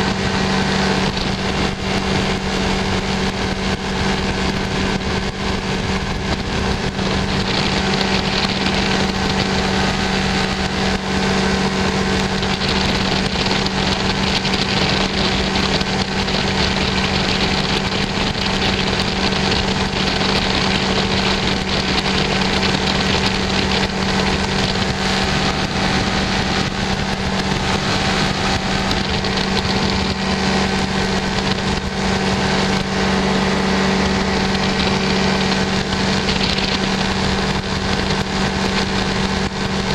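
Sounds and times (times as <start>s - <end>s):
light aircraft engine droning: 0.0s - 39.9s.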